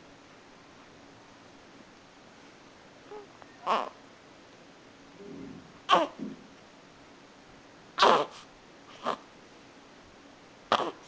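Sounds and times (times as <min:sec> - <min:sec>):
baby squeaky grunting: 0:03.1 - 0:04.0, 0:05.9 - 0:06.2, 0:08.0 - 0:09.2, 0:10.7 - 0:11.0.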